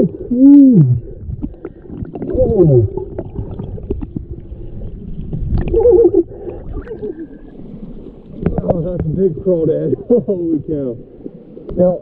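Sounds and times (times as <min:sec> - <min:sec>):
man exclaiming underwater: 0:00.0 - 0:01.2, 0:02.2 - 0:03.2, 0:05.6 - 0:07.2
low underwater rumble: 0:00.0 - 0:12.0.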